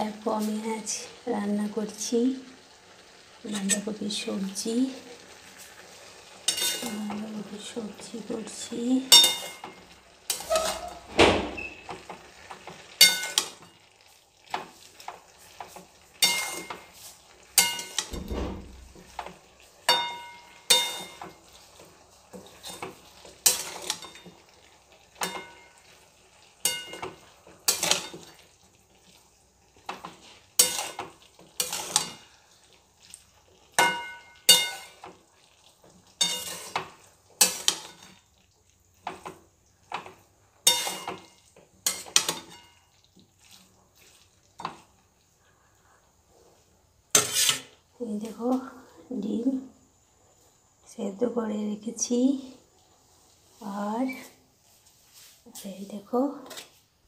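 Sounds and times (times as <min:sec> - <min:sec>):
metal spatula scraping pan: 0:06.4 - 0:13.7, 0:14.5 - 0:24.4, 0:25.2 - 0:26.0, 0:26.6 - 0:28.4, 0:29.8 - 0:32.4, 0:33.8 - 0:35.1, 0:36.2 - 0:38.2, 0:40.6 - 0:42.8, 0:47.1 - 0:47.8, 0:56.4 - 0:56.8.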